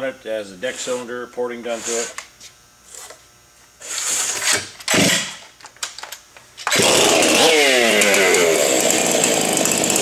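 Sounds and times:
chainsaw engine running: 0:06.7 - 0:10.0.

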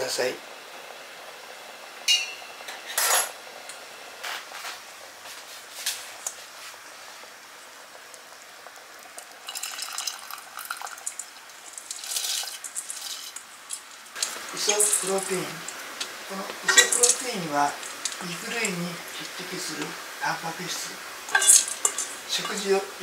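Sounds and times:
kitchenware clinking: 0:02.1 - 0:03.4, 0:16.0 - 0:18.6, 0:21.3 - 0:22.8.

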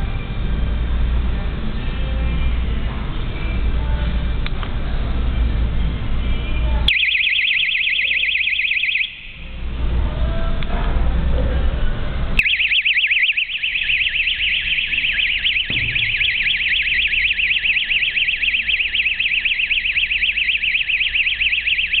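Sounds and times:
fast warbling siren: 0:06.9 - 0:09.4, 0:12.4 - 0:22.0.

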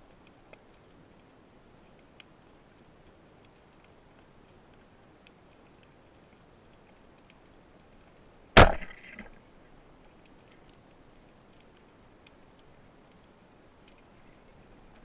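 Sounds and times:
speargun crack underwater: 0:08.6 - 0:09.4.

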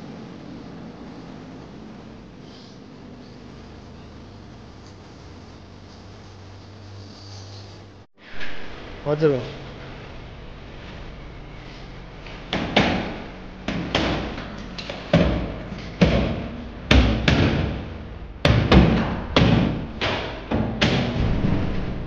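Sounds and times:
knocks and thuds on metal frame: 0:12.3 - 0:22.0.

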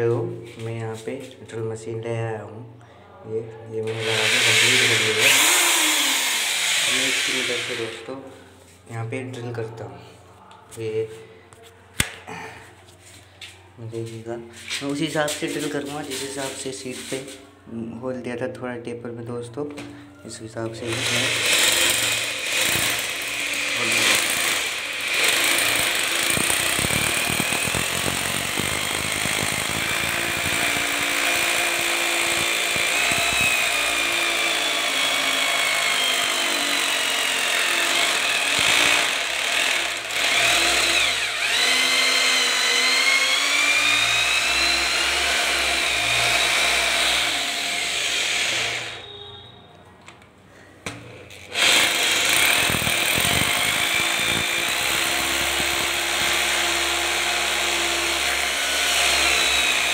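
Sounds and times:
electric drill boring into tile: 0:03.9 - 0:08.1, 0:20.8 - 0:49.1, 0:51.4 - 0:59.9.

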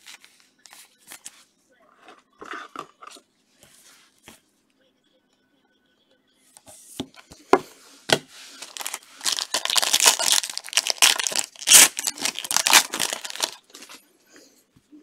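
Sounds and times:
foil wrapper crackling: 0:08.6 - 0:14.0.

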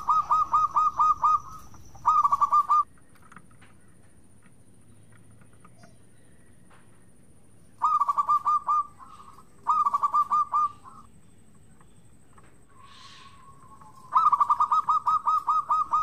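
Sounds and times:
dove cooing: 0:00.0 - 0:02.9, 0:07.8 - 0:11.1, 0:12.8 - 0:16.0.

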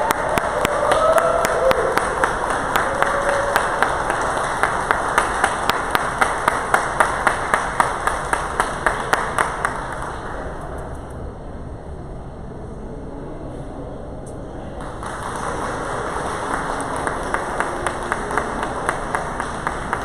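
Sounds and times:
crowd applause: 0:00.0 - 0:10.7, 0:14.8 - 0:20.0
close rhythmic clapping: 0:00.0 - 0:10.8, 0:14.8 - 0:20.0.

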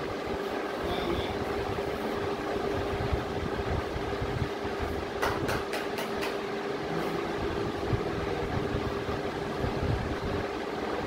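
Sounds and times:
constant hum: 0:00.0 - 0:11.0.

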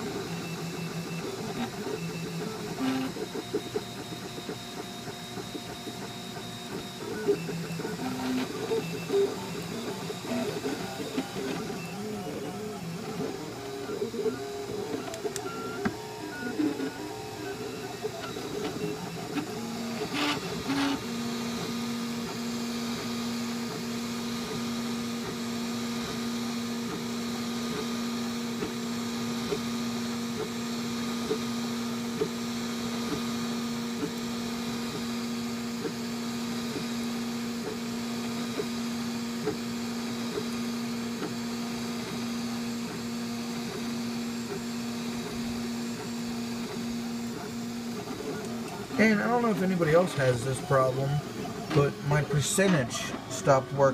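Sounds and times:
stepper motors humming: 0:00.0 - 0:22.3
cooling fans whirring: 0:00.0 - 0:53.9.

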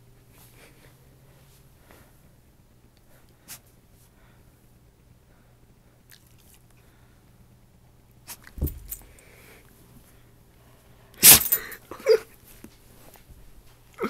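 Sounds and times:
thump on carpeted floor: 0:08.5 - 0:09.1.

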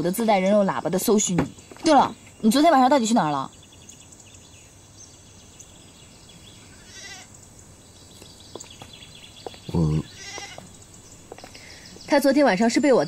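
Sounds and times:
animal bleating: 0:06.8 - 0:07.3, 0:09.7 - 0:10.7.

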